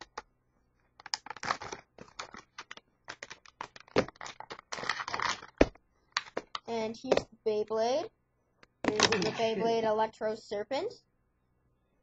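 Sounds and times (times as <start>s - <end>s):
plastic packaging clicking and crinkling: 0.9s - 7.2s.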